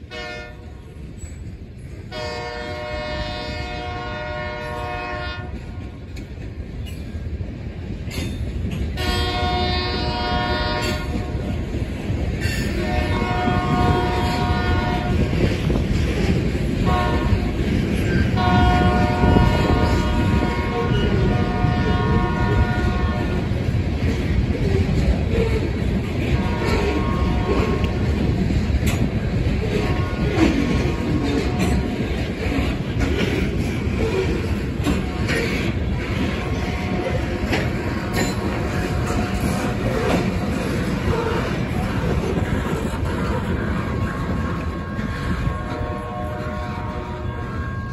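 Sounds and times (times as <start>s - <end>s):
rail cars rumbling on rails: 0.0s - 47.9s
locomotive horn blasts: 0.1s - 0.7s, 2.1s - 5.8s, 9.0s - 11.5s, 12.7s - 15.4s, 16.8s - 17.6s, 18.2s - 23.6s, 26.2s - 28.2s, 36.2s - 39.9s, 43.8s - 47.9s.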